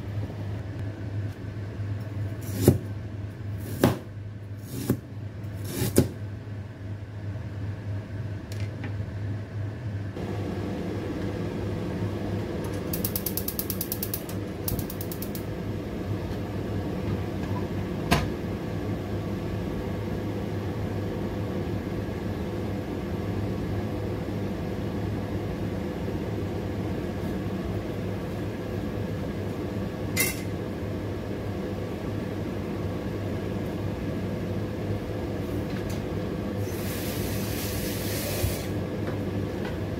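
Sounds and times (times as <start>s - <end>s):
stove hum and hiss: 0.0s - 39.9s
knife chopping on plastic board: 3.7s - 4.1s.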